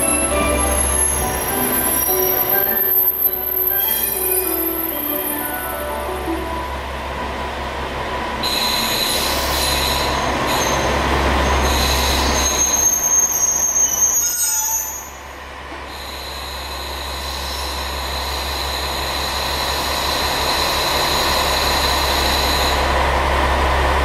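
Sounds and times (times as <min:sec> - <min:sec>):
high squealing tones: 0:00.0 - 0:06.9
high whine: 0:00.0 - 0:12.4.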